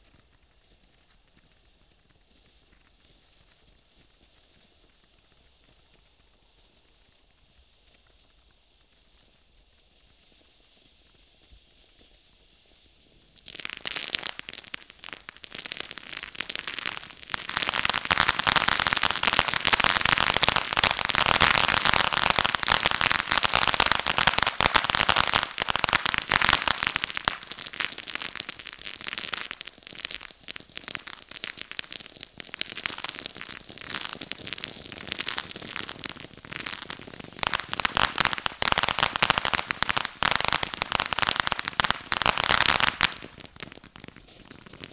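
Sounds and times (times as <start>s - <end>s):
firework fountain crackling: 0.0s - 44.9s.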